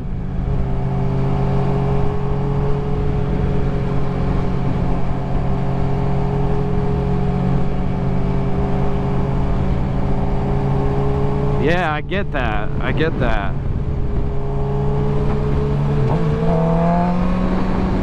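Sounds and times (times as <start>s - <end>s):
wind rumble on microphone: 13.5s - 16.5s
motorcycle engine cruising: 13.6s - 18.0s.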